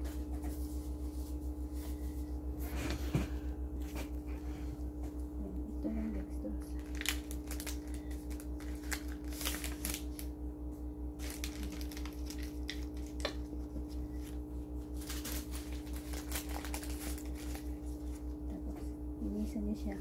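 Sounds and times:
machine humming with low pulsing: 0:00.0 - 0:20.0
plastic packet crinkling: 0:06.7 - 0:10.3, 0:11.2 - 0:18.2.

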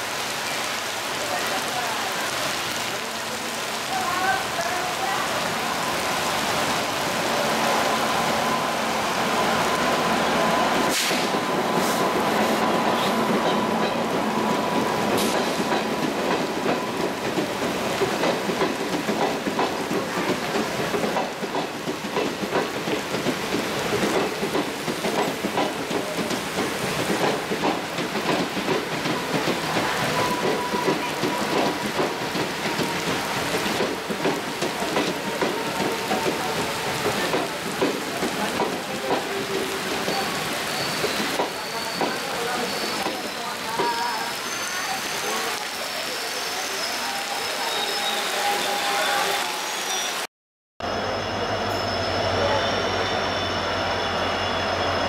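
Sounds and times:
steady rain hiss: 0:00.0 - 0:13.4, 0:14.0 - 0:30.2, 0:31.0 - 0:50.3
train wheels clicking over rail joints: 0:15.1 - 0:40.2.

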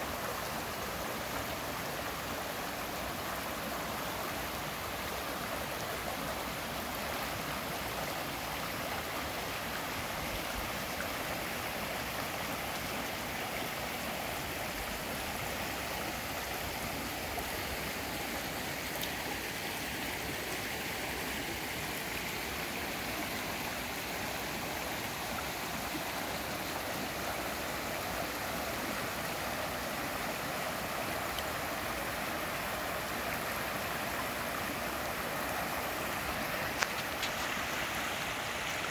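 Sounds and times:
water rushing over boulders: 0:00.0 - 0:38.9.

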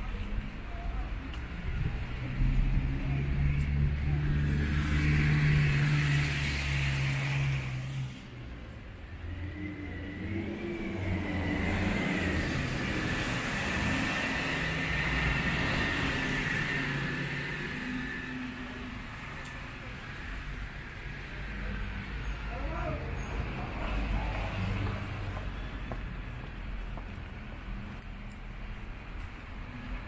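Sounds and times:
traffic tyre noise on wet road: 0:00.0 - 0:30.0
loud close vehicle engine: 0:01.7 - 0:25.4.

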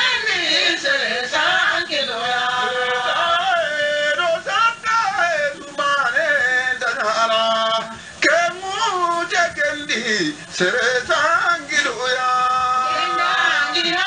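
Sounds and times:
man chanting: 0:02.8 - 0:13.9.

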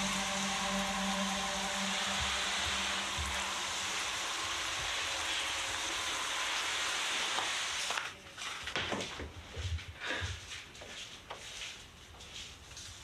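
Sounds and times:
hose nozzle spraying water: 0:02.4 - 0:08.1.

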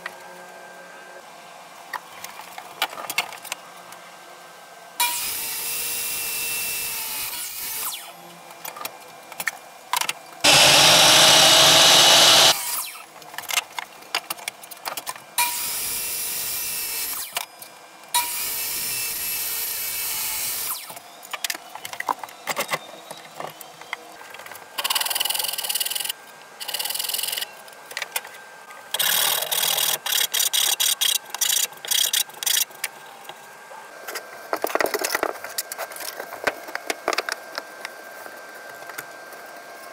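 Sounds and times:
miter saw cutting boards: 0:05.0 - 0:08.2, 0:10.4 - 0:13.1, 0:15.4 - 0:17.5, 0:18.2 - 0:23.5.

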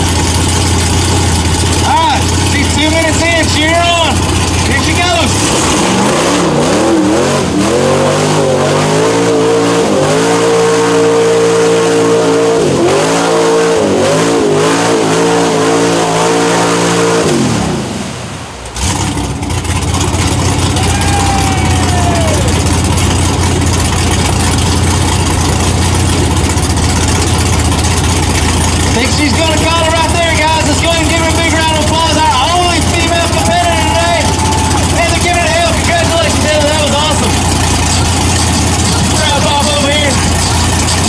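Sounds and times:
engine running rough and low: 0:00.0 - 0:41.0
truck engine revving: 0:00.0 - 0:41.0.

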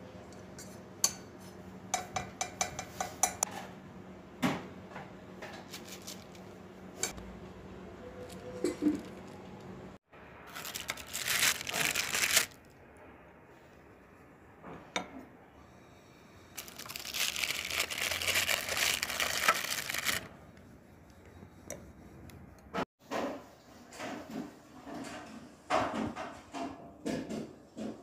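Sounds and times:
paper crinkling and rustling: 0:05.6 - 0:06.5, 0:10.5 - 0:12.7, 0:16.6 - 0:20.3.

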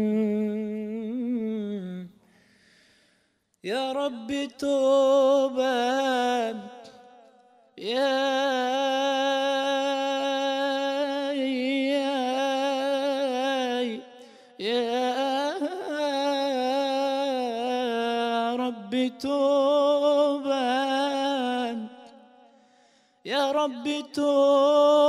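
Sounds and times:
man singing unaccompanied: 0:03.6 - 0:07.1, 0:07.8 - 0:22.3, 0:23.3 - 0:25.0.

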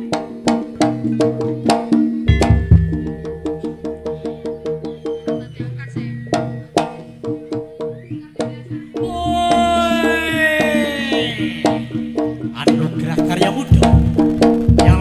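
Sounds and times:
drum strokes: 0:00.0 - 0:15.0
gong and metallophone notes: 0:02.0 - 0:04.9.

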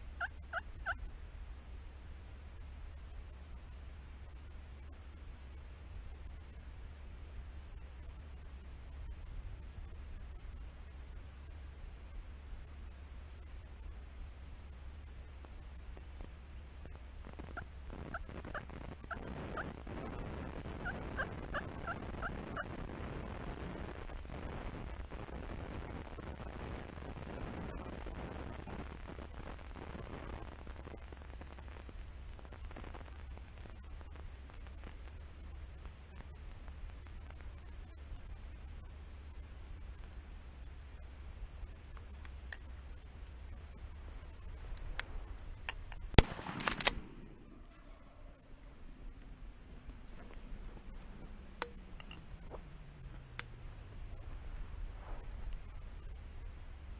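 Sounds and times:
turkey yelps: 0:00.1 - 0:01.0, 0:17.5 - 0:22.8
quick clicks: 0:45.7 - 0:47.1
shotgun blast: 0:46.2 - 0:47.6.

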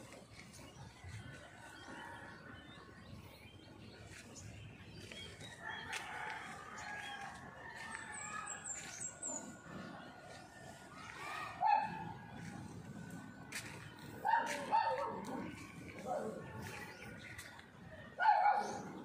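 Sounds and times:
faint rooster crowing: 0:05.0 - 0:12.0.

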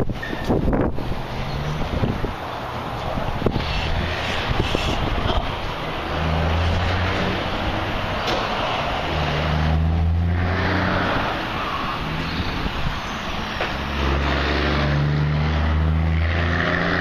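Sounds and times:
wind noise: 0:00.0 - 0:08.2, 0:11.0 - 0:13.9
road noise: 0:00.0 - 0:17.0
vehicle engine humming: 0:00.0 - 0:17.0.

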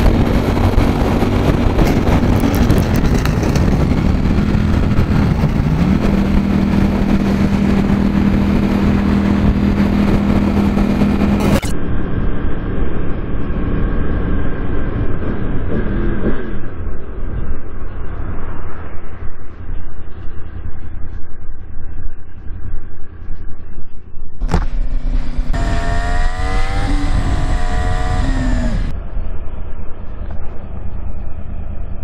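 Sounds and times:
motorcycle engine running: 0:00.0 - 0:17.4, 0:24.4 - 0:29.2
wind rush on microphone: 0:00.0 - 0:32.0.

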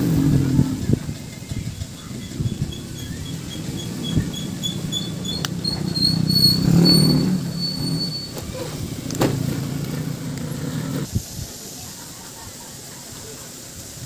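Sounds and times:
vehicle engine rumble: 0:00.0 - 0:11.6
faint high chirping: 0:01.7 - 0:08.7.

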